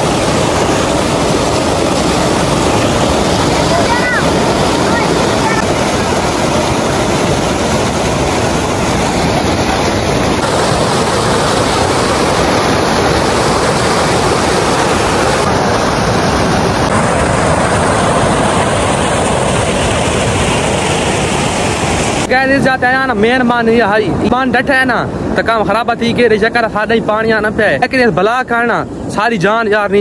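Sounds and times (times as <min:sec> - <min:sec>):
floodwater rushing: 0:00.0 - 0:22.8.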